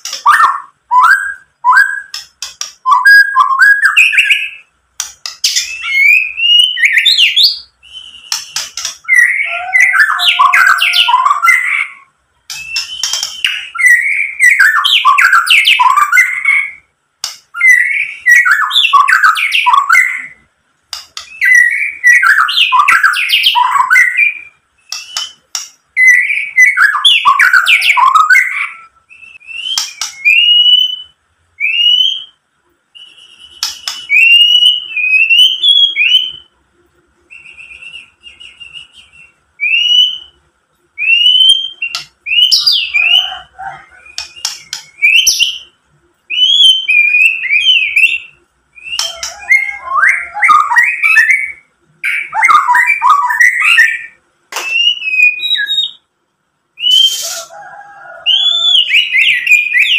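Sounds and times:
bird whistling rising notes: 0:05.5 - 0:16.8, 0:33.0 - 0:36.5, 0:46.3 - 0:56.0, 0:56.8 - 0:59.9.

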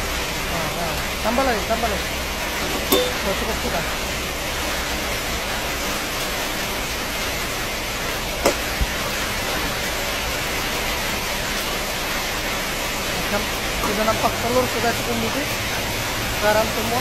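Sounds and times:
egg sizzling in a wok: 0:00.0 - 0:17.0
spatula knocking against pan: 0:08.4 - 0:08.7.

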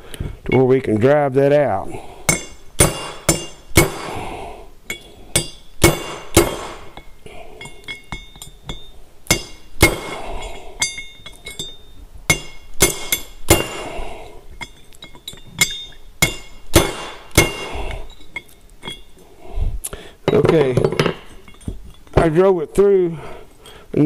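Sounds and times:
hammer striking steel punch: 0:02.3 - 0:04.2, 0:04.9 - 0:14.0, 0:15.6 - 0:17.9.

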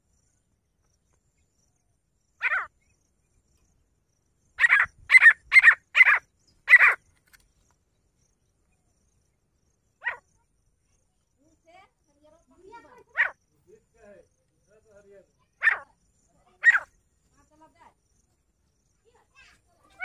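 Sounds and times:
francolin calling: 0:01.0 - 0:20.0.

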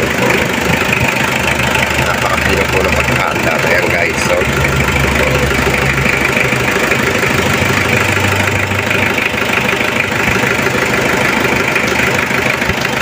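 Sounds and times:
diesel engine idling: 0:00.0 - 0:13.0.

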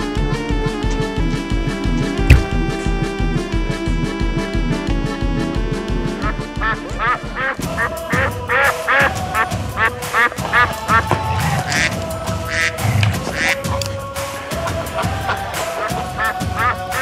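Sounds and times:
background music: 0:00.0 - 0:17.0
rubber duck quacks: 0:06.2 - 0:09.0.

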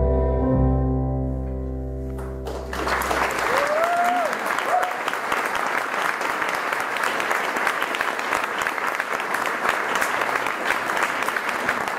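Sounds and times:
audience applauding: 0:02.4 - 0:11.9.

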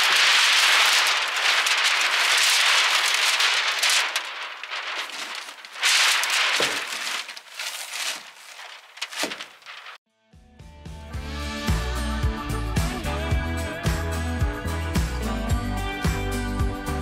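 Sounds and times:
plastic sheet crinkling and flapping: 0:00.0 - 0:10.0.

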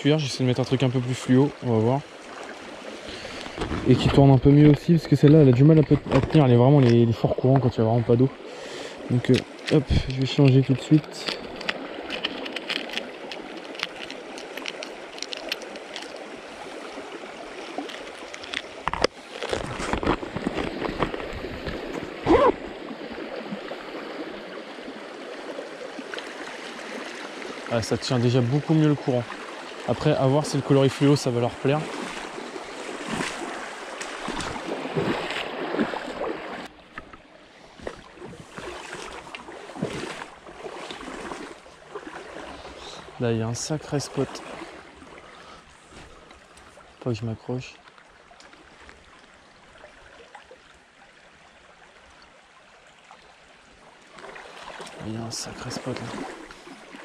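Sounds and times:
stream running over stones: 0:00.0 - 0:57.0
lures rattling in plastic box: 0:11.4 - 0:16.2
splashes from wading: 0:30.9 - 0:36.8, 0:37.8 - 0:43.2, 0:54.0 - 0:57.0.

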